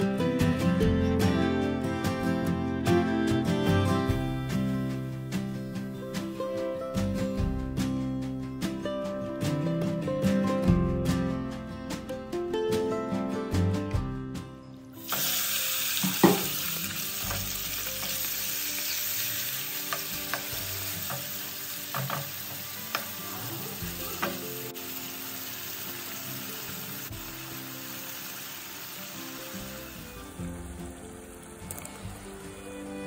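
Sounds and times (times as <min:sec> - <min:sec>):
chicken sizzling in oil: 0:15.0 - 0:33.0.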